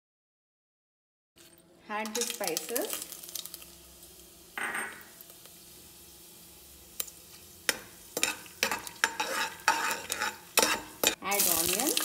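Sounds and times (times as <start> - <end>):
spices sizzling in hot oil: 1.4 - 12.0
metal spoon scraping a pot: 7.7 - 11.2.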